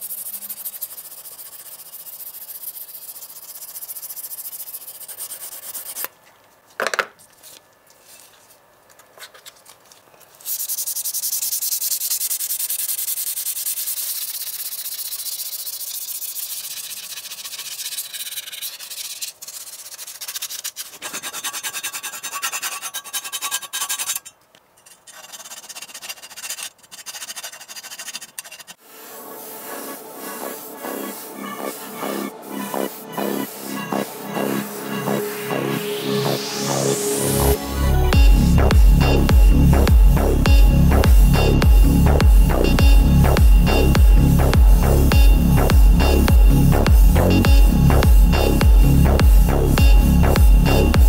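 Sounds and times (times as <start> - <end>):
file scraping on metal: 10.8 - 28.8, 29.5 - 35.2.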